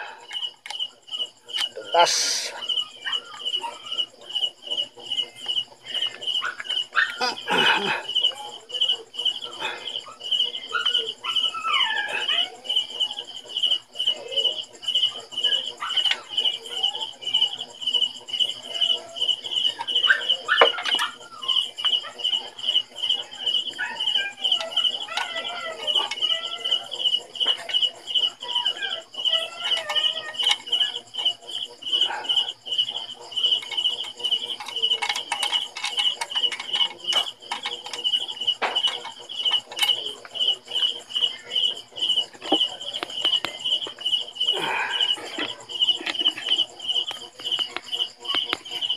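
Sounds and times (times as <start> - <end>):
cricket chirping: 0.0 - 48.9
hand tool clicks and rattles: 24.5 - 26.8, 29.6 - 31.4, 33.5 - 40.5.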